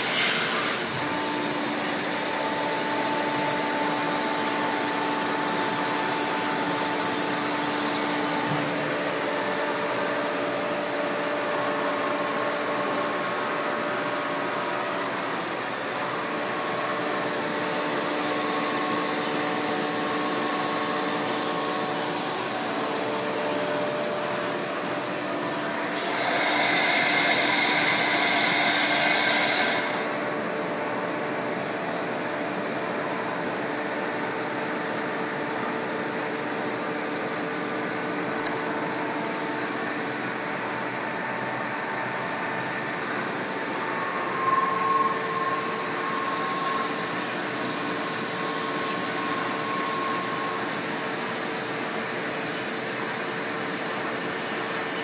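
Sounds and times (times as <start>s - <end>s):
loud hiss: 0.0s - 1.0s
machine whirring drone: 38.3s - 38.7s.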